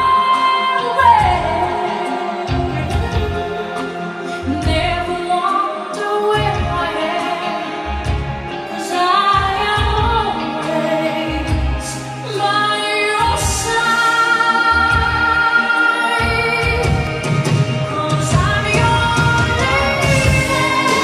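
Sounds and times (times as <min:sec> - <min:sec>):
woman singing: 0:00.0 - 0:21.0
deep bass notes: 0:01.0 - 0:01.8, 0:02.5 - 0:03.8, 0:11.3 - 0:12.2.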